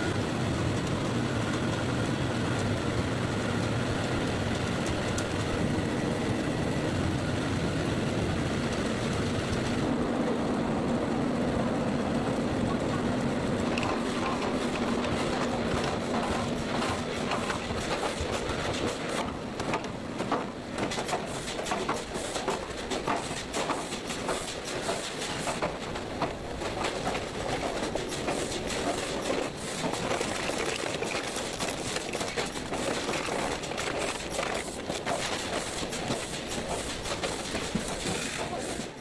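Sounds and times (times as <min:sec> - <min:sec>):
production line machinery clicking: 0:13.6 - 0:39.0.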